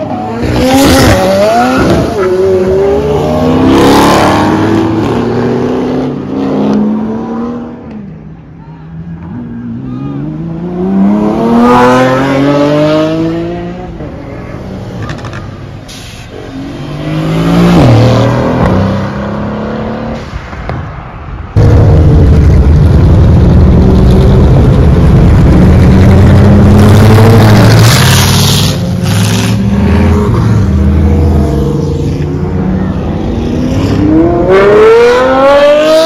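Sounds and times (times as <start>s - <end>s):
loud steady engine rumble: 20.2s - 33.6s.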